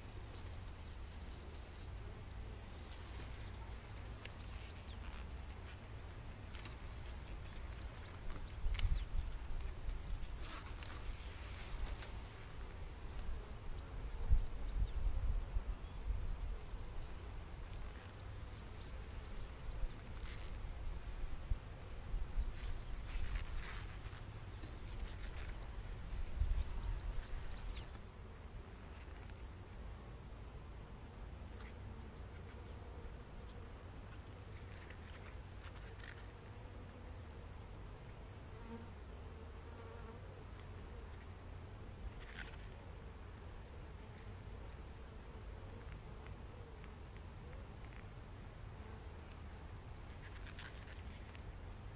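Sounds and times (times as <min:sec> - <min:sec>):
bees buzzing faintly: 0:00.0 - 0:51.9
wind rumbling on microphone: 0:06.8 - 0:17.8, 0:19.2 - 0:28.0.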